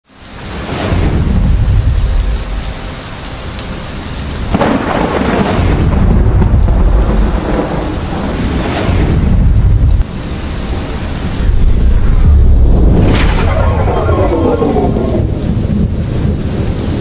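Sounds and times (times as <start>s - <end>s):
rain hiss: 0.0s - 17.0s
thunder rumbling: 0.4s - 3.0s, 4.4s - 17.0s
thunderclap: 0.6s - 2.6s, 4.5s - 17.0s.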